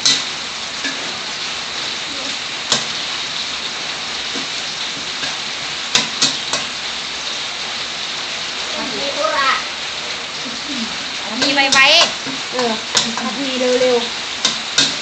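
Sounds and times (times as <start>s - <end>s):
meat sizzling in a wok: 0.0s - 15.0s
metal spatula clacking on wok: 11.4s - 13.4s, 14.4s - 15.0s.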